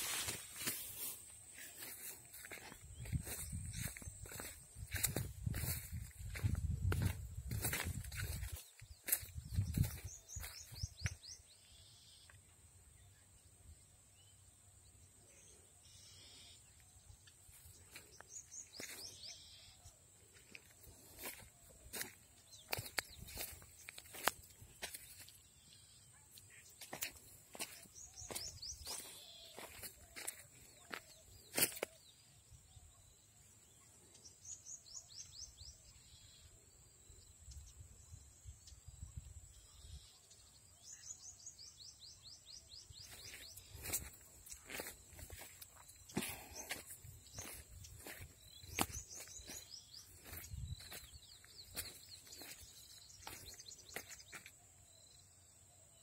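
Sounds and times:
footsteps on dry soil: 0.0s - 11.4s, 17.5s - 25.7s, 26.3s - 32.2s, 42.4s - 54.6s
faint bird chirps: 0.2s - 56.0s.

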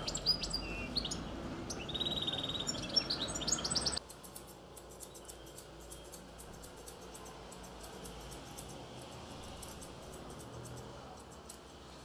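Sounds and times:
birds chirping and trilling: 0.0s - 8.3s
street noise: 0.0s - 12.0s
scissors snipping: 4.0s - 11.7s.

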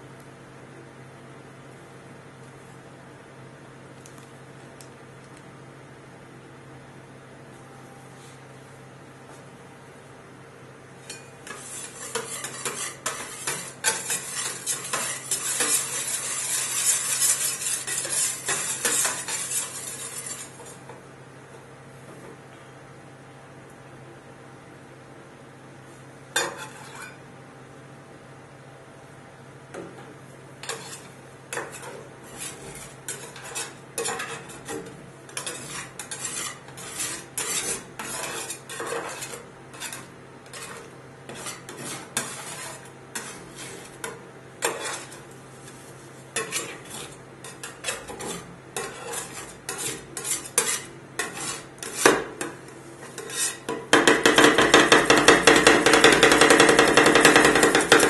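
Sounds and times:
spatulas scraping steel pan: 11.1s - 20.8s, 26.4s - 27.2s, 30.6s - 58.0s
spatula chopping on pan: 11.5s - 20.5s, 46.4s - 58.0s.

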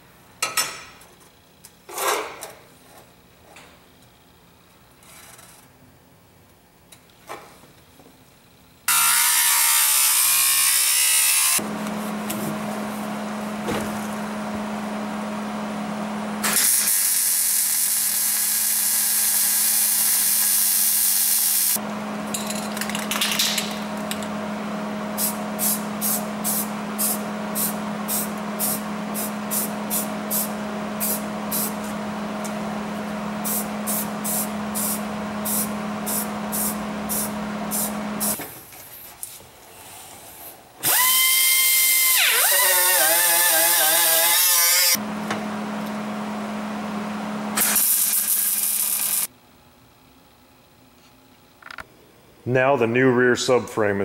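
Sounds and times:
welder arc crackling: 47.8s - 49.3s.

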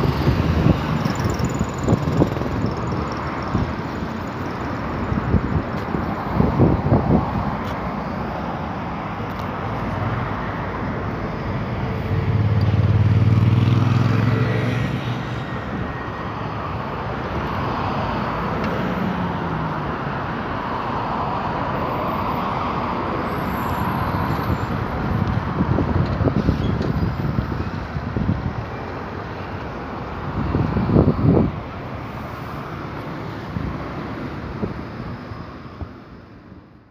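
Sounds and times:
heavy vehicle engine rumble: 0.0s - 14.1s, 22.7s - 36.4s
passing car noise: 0.0s - 36.9s.

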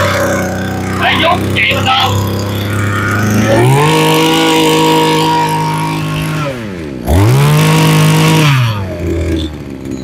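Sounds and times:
brush cutter engine revving: 0.0s - 9.9s.

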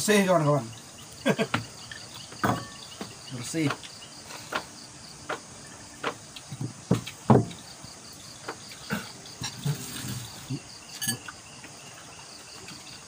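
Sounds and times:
night insects trilling: 0.0s - 13.0s
clatter of eating off plates: 1.3s - 7.6s, 8.4s - 11.4s.

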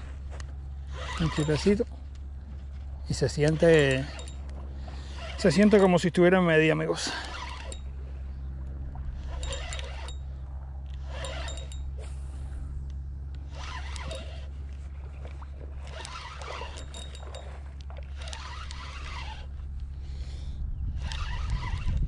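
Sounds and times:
fishing reel scraping and clicking: 0.0s - 12.2s, 13.3s - 22.0s
low rumble: 7.7s - 13.6s.

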